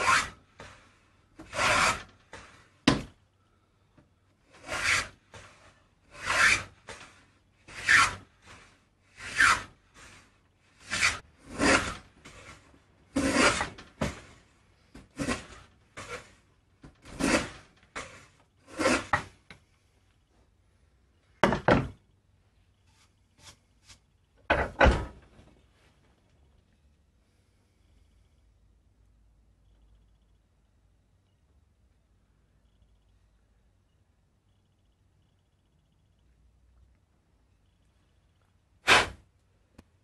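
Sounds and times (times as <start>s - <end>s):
plane rasping along wood: 0.0s - 0.8s, 1.4s - 2.6s, 4.5s - 14.2s, 15.1s - 16.4s, 17.0s - 19.3s.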